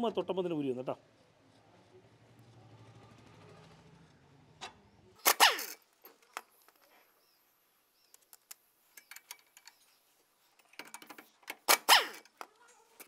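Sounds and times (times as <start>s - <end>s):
metallic clicks and taps: 8.0s - 9.8s.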